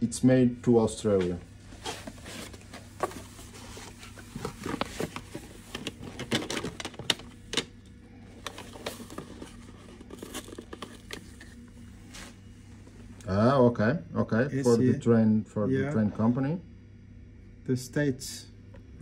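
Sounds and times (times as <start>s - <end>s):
cardboard and paper rustling: 1.7s - 12.4s.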